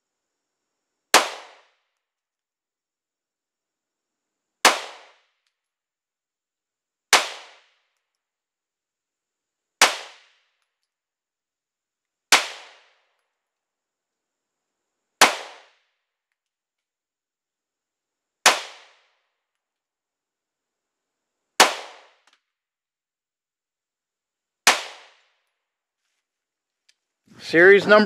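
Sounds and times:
pistol shots: 0:01.1 - 0:01.8, 0:04.6 - 0:05.3, 0:07.1 - 0:07.7, 0:15.2 - 0:15.8, 0:18.4 - 0:19.0, 0:21.6 - 0:22.3, 0:24.7 - 0:25.2.

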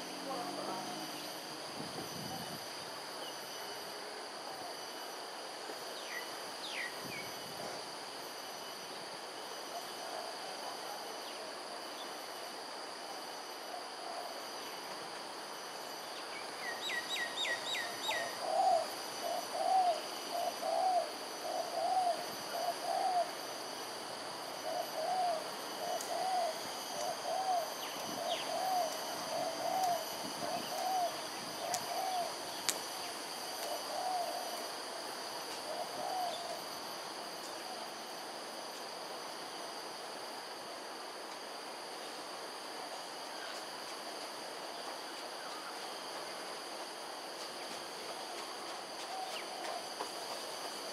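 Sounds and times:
insects chorus: 0:00.0 - 0:50.9
bird hooting: 0:16.7 - 0:23.4, 0:24.6 - 0:32.4, 0:33.7 - 0:34.6, 0:35.7 - 0:36.6.

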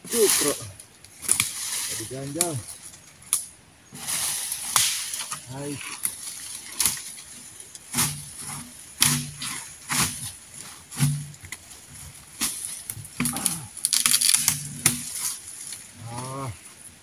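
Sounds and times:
man grunting with effort: 0:13.2 - 0:13.8, 0:16.0 - 0:16.6.

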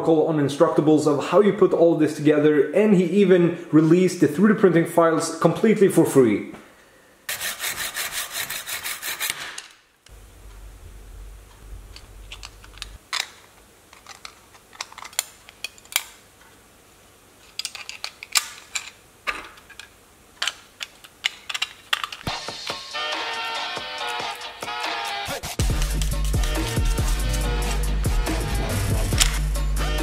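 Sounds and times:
hacksaw cutting: 0:07.3 - 0:09.7
plastic parts clicking together: 0:11.9 - 0:16.5, 0:17.4 - 0:22.8, 0:29.1 - 0:29.4
music: 0:22.3 - 0:30.0.

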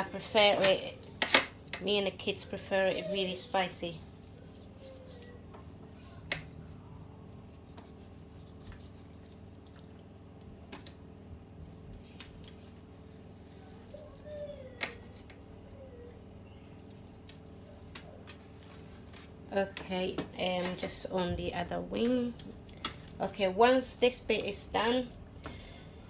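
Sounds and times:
wet squishing of hands on chicken: 0:06.6 - 0:11.0, 0:11.6 - 0:15.3, 0:16.1 - 0:19.5.

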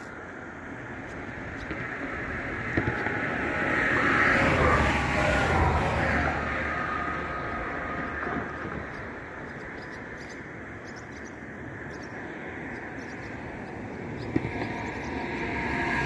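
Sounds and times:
distant traffic hum: 0:00.0 - 0:16.0
vehicle passing: 0:01.2 - 0:09.9, 0:12.5 - 0:16.0.

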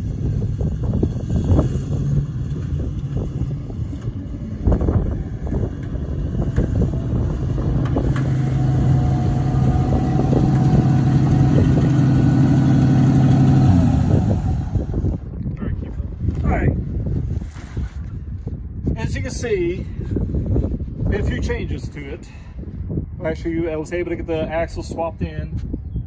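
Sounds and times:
pickup truck engine running: 0:00.0 - 0:15.2.

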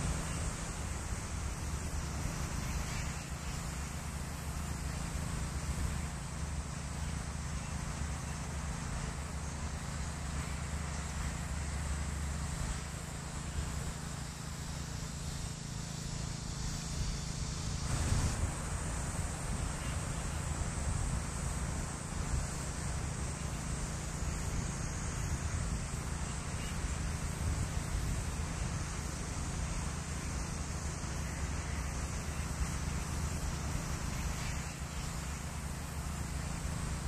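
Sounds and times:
outdoor hiss: 0:00.0 - 0:37.0
wind on microphone: 0:16.7 - 0:23.2.

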